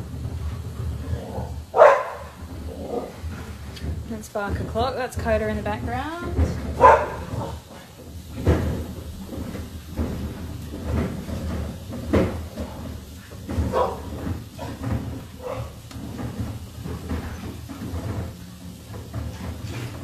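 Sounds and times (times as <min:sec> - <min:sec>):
vegetables knocking on grill: 0:00.0 - 0:20.0.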